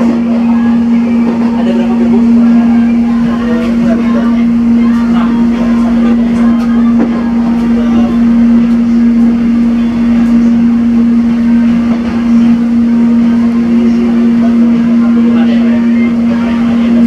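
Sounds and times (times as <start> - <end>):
rumble of wheels on track: 0.0 - 17.0
steady electric train hum: 0.0 - 17.0.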